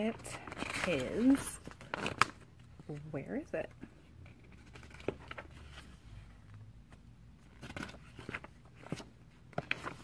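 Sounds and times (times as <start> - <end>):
paper pages rustling: 0.0 - 3.0, 4.2 - 10.0.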